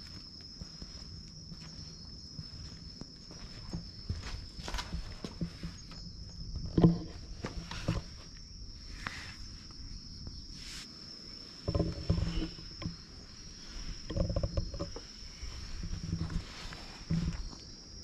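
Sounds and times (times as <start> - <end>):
high-pitched insect drone: 0.0 - 18.0
clothing and camera rustling: 3.4 - 6.0.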